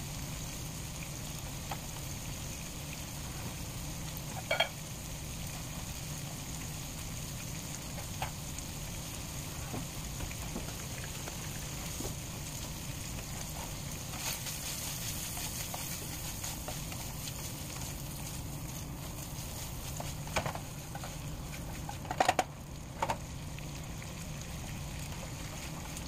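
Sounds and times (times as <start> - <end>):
sausage sizzling in oil: 0.0 - 26.0.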